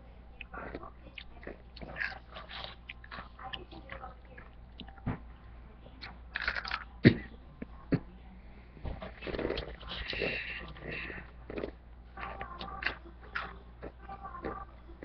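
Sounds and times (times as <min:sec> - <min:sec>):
person chewing crunchy food: 0:00.4 - 0:05.0, 0:06.3 - 0:07.2, 0:09.2 - 0:14.7.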